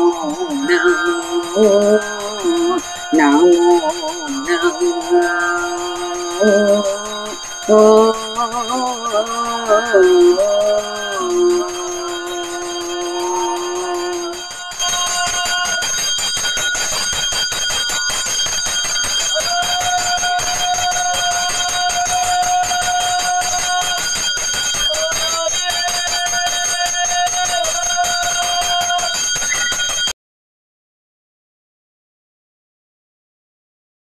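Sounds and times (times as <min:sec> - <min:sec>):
long held note: 0:00.0 - 0:15.9
hand bell rung rapidly: 0:00.0 - 0:30.1.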